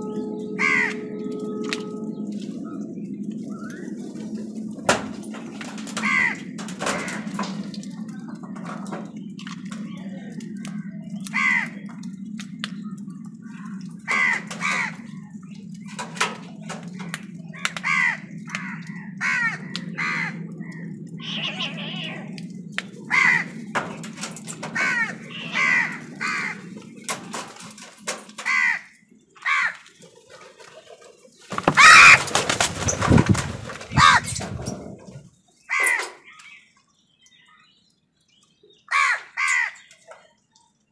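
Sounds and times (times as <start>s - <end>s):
crows cawing: 0.0s - 2.9s, 3.7s - 8.6s, 10.7s - 12.2s, 13.5s - 30.0s, 31.5s - 34.7s, 35.6s - 36.3s, 38.9s - 39.9s
low hum: 0.0s - 29.4s
wingbeats of flock taking off: 2.5s - 21.8s, 22.6s - 28.9s, 29.5s - 35.2s.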